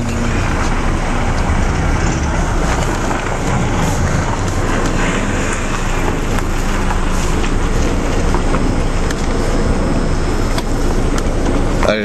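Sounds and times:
car engine and road noise rumble: 0.0s - 12.0s.

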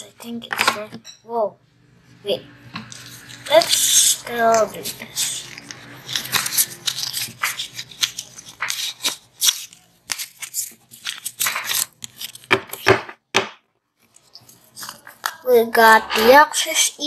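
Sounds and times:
foil pack ripping and crinkling: 3.2s - 12.5s.

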